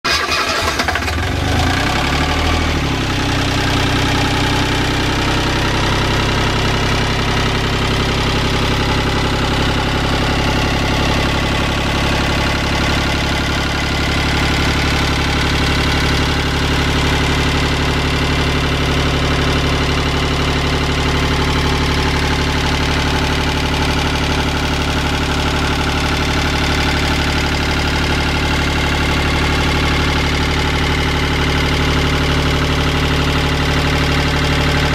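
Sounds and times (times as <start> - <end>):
diesel boat engine idling: 3.7 - 34.9.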